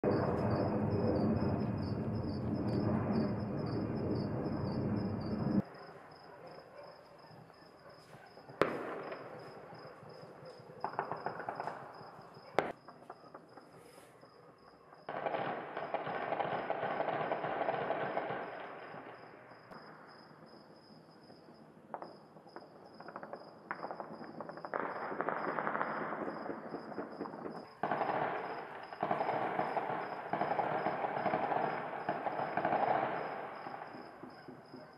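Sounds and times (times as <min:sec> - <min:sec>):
distant gunfire and fireworks crackling: 0:00.0 - 0:34.9.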